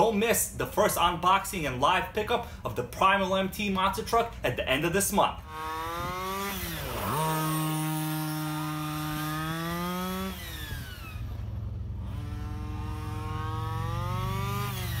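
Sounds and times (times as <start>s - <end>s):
small two-stroke engine revving: 5.4s - 15.0s.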